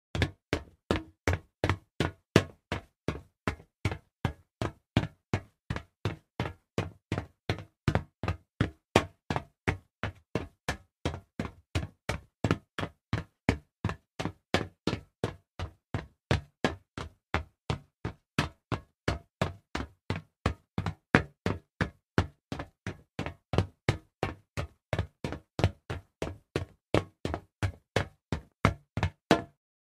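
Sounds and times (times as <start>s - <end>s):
fast footsteps on hollow metal: 12.6s - 29.5s.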